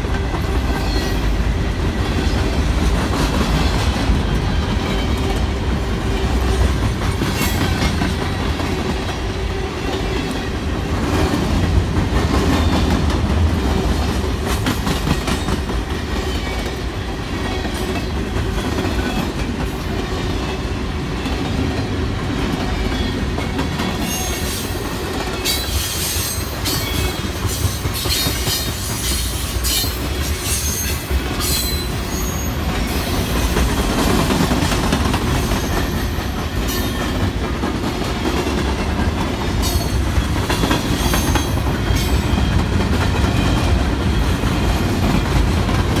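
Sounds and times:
train wheels rumbling on rails: 0.0s - 46.0s
wheels clickety-clack over joints: 11.0s - 16.8s.

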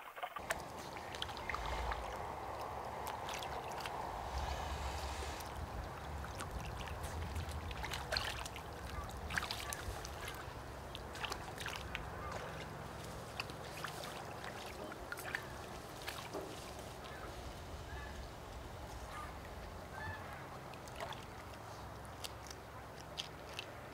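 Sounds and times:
running water: 0.0s - 23.9s
otter chewing fish: 0.4s - 23.9s.

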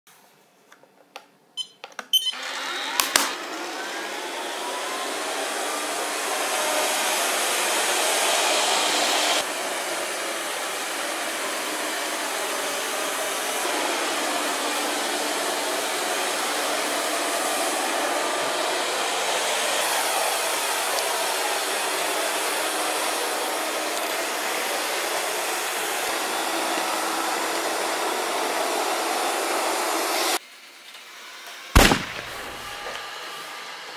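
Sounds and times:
robot vacuum motor whirring: 2.3s - 22.1s
sharp clicks: 31.8s - 33.0s.

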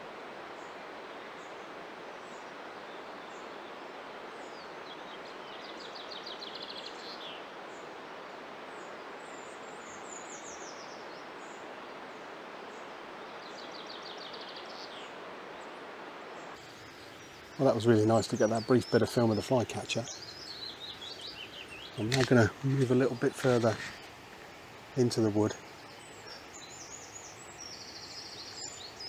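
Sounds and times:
songbird trills: 16.6s - 29.0s
thin high bird chirps: 18.4s - 29.0s.

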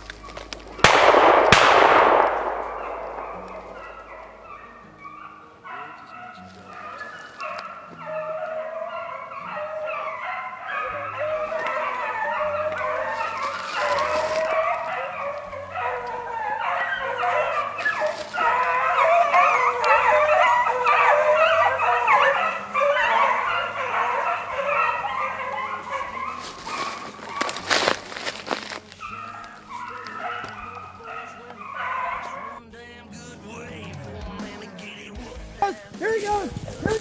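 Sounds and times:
hounds baying and howling: 0.0s - 32.6s.

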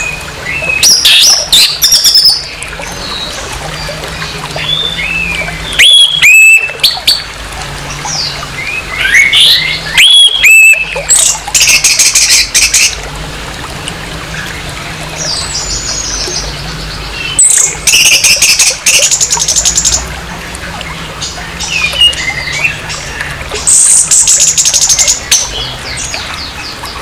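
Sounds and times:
thrush whistled song: 4.6s - 7.2s, 8.2s - 12.9s, 17.2s - 20.0s, 21.6s - 22.8s.

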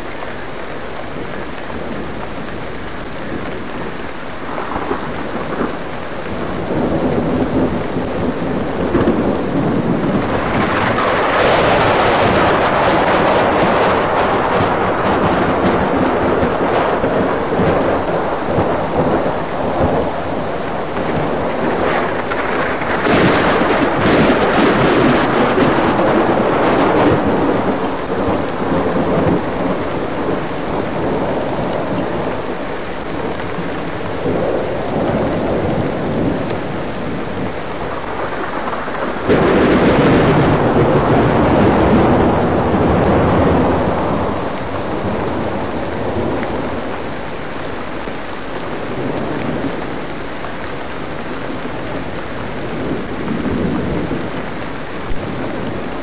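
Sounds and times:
heavy rain falling: 0.0s - 56.0s
thunder rumbling: 1.1s - 56.0s.

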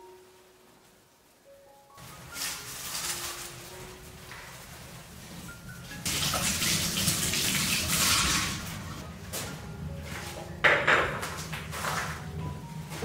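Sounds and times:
water running and splashing: 6.0s - 8.9s.

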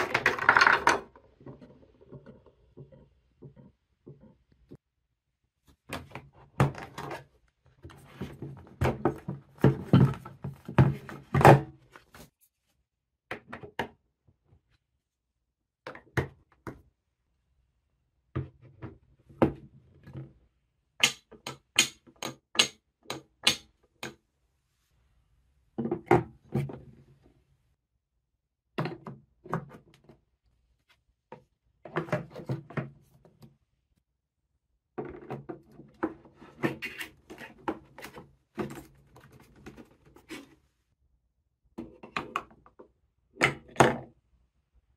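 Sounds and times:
wooden and plastic pieces clacking: 0.0s - 4.3s.

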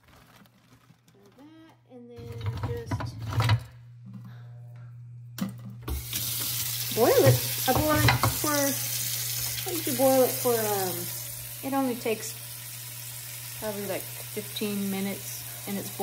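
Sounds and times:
tap water running into pot: 5.9s - 16.0s.

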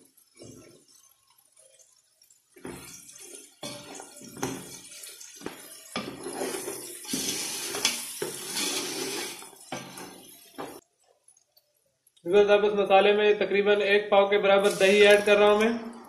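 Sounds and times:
food sizzling in oil: 0.0s - 10.8s, 14.6s - 16.0s
wooden spoon scraping a pot: 2.6s - 10.8s.

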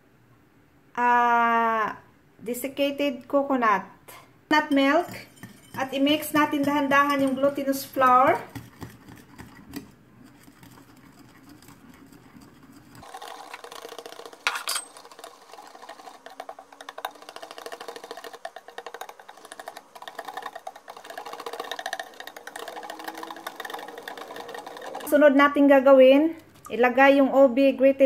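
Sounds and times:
whisk scraping and tapping bowl: 4.5s - 25.6s.

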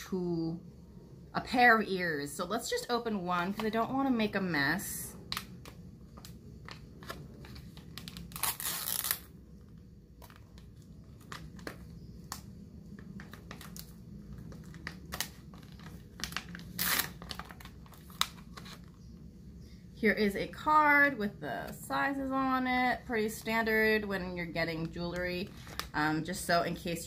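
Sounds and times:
plastic ripping: 5.1s - 19.0s, 24.8s - 26.0s
plastic crinkling: 5.1s - 19.3s, 23.2s - 27.0s.

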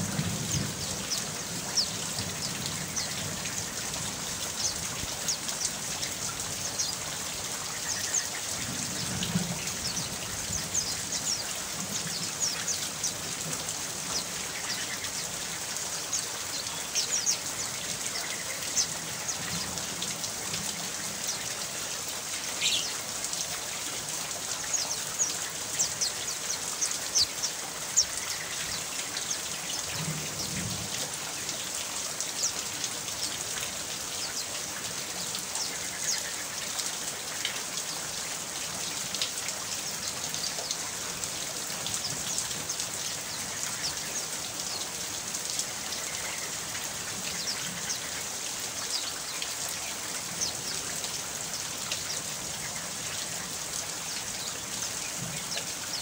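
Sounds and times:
steady rain falling: 0.0s - 56.0s.

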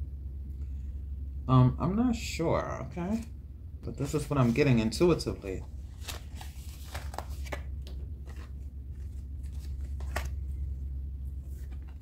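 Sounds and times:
steady low hum: 0.0s - 12.0s
cards shuffling: 4.0s - 10.7s, 11.4s - 12.0s
card clicks and snaps: 6.0s - 8.5s, 9.5s - 10.4s.

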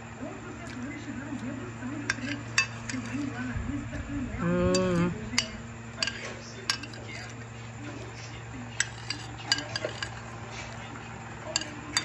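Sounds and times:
spoon clinking against glass bowl: 2.0s - 3.2s, 4.7s - 7.4s, 8.8s - 10.4s, 11.4s - 12.0s
person humming: 4.4s - 5.2s.

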